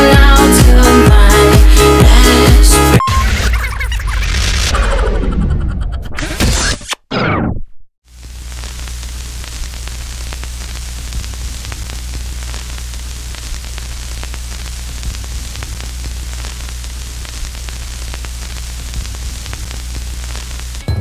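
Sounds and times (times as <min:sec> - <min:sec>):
small crackles: 0:08.1 - 0:20.8
static hiss: 0:08.1 - 0:20.8.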